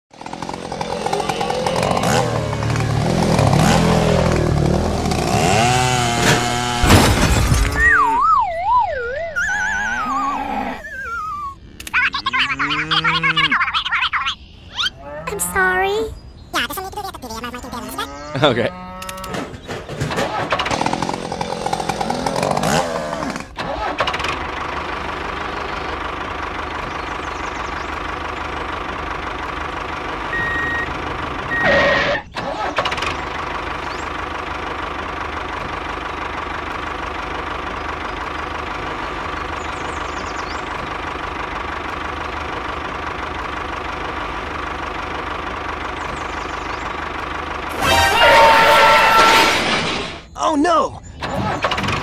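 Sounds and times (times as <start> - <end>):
tractor engine idling: 0.1 - 5.9, 19.1 - 49.2, 51.1 - 52.0
short loud burst: 47.7 - 50.3.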